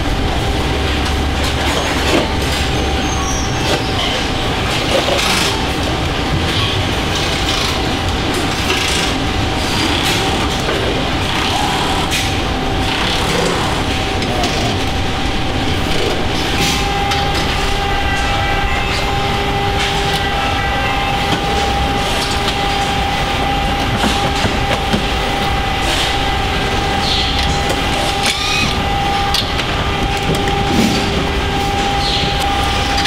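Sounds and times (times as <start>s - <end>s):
factory mechanical rumble and hum: 0.0s - 33.0s.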